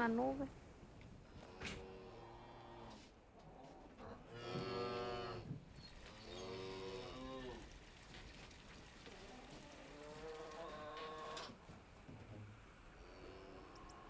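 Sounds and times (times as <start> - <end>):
cattle mooing: 4.3 - 5.5, 6.3 - 7.7, 9.7 - 11.6.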